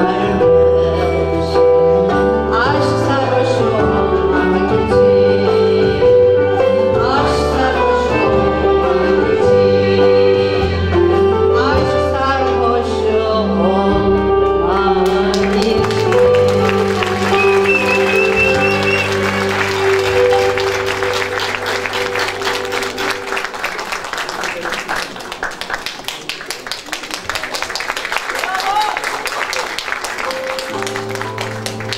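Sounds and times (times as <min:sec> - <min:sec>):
woman singing: 0:00.0 - 0:20.9
instrumental ensemble sustained notes: 0:14.6 - 0:24.3.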